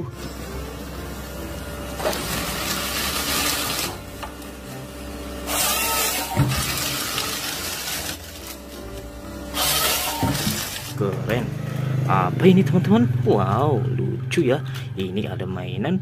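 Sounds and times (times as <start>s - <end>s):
low engine hum: 10.6s - 15.9s.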